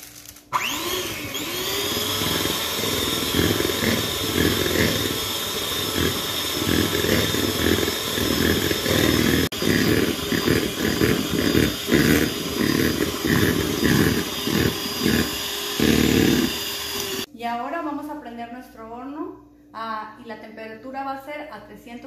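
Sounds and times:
electric hand mixer whining: 0.5 - 17.3.

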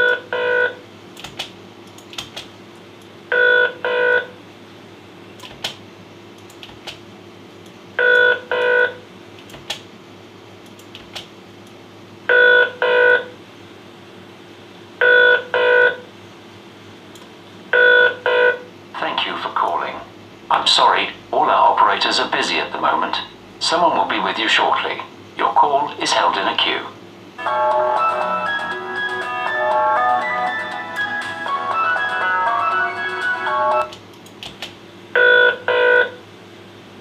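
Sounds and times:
telephone ringing: 3.3 - 4.3, 8.0 - 9.0, 27.4 - 33.9, 35.2 - 36.2.

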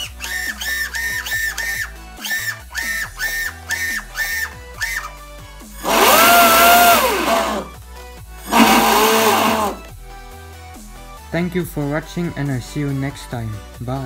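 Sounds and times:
electric motor whine: 5.8 - 7.7, 8.5 - 9.8.

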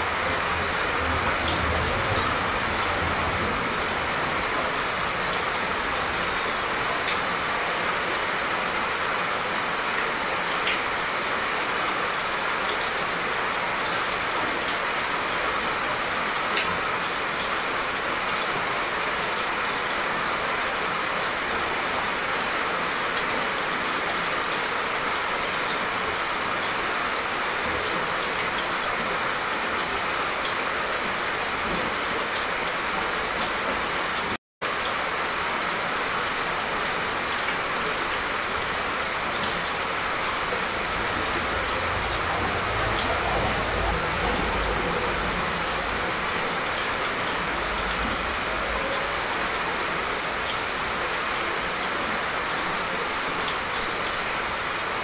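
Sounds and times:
gentle rain falling: 0.0 - 55.0.

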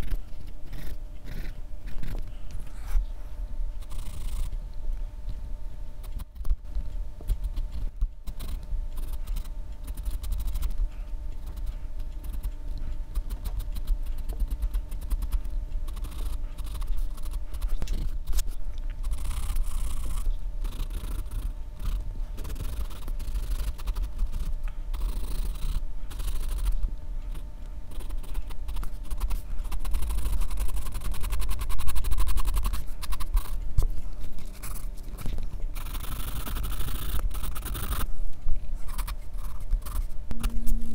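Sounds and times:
pencil scratching on paper: 27.9 - 33.6, 35.8 - 38.1, 38.8 - 40.9
steady low rumble: 38.0 - 40.9.

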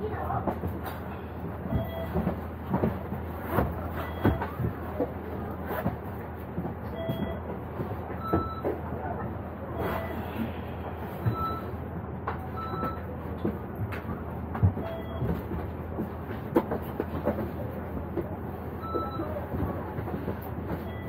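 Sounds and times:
short electronic beeps: 11.3 - 11.7.

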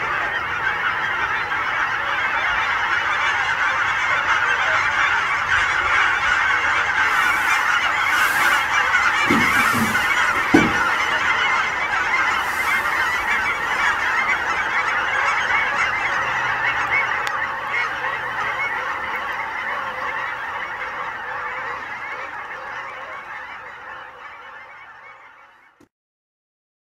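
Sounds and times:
flock of geese honking: 0.0 - 25.9
brief thump: 7.2 - 11.2.

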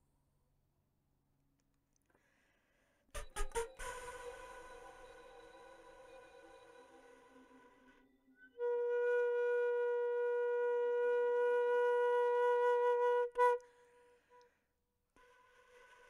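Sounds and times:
flute note: 3.2 - 13.9.

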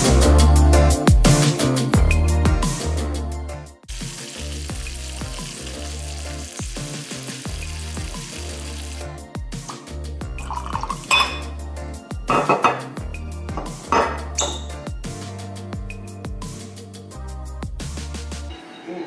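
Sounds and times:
music with pulsing bass beat: 0.0 - 4.1, 6.6 - 18.5
bacon sizzling in a pan: 3.9 - 9.2.

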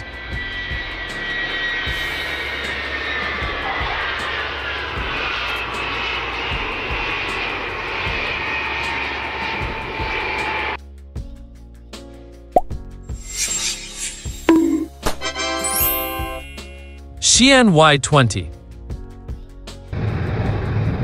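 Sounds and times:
jet engines roaring and whining: 0.0 - 10.8.

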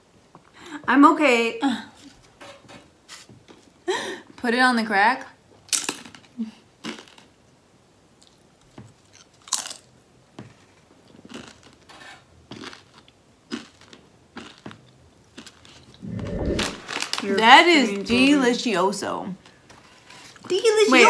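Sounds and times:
crunchy chewing: 8.2 - 9.9, 11.0 - 11.9, 12.5 - 16.9
dull low rumble: 16.0 - 17.0.

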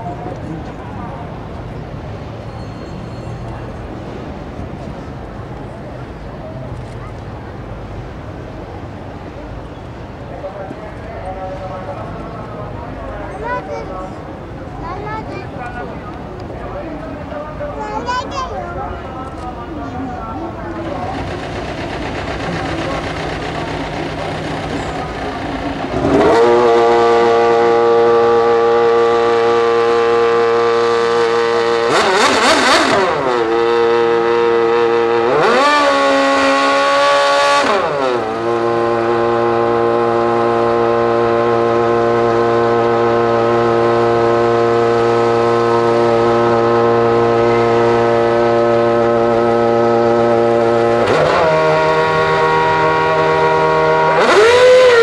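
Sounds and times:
racing car engine idling and revving: 19.2 - 55.0.

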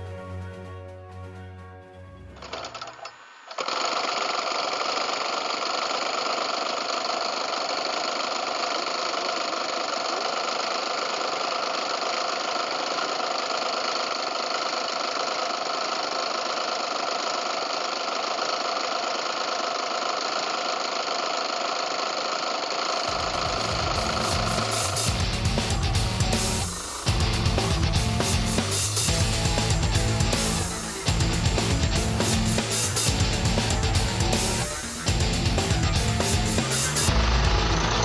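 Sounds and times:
music: 0.0 - 2.7, 23.1 - 38.0
model airplane engine running: 2.4 - 38.0.

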